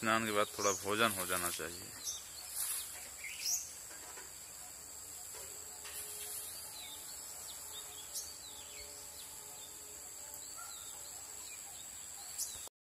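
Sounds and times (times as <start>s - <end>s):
bird chirping: 0.0s - 12.7s
high insect drone: 0.0s - 12.7s.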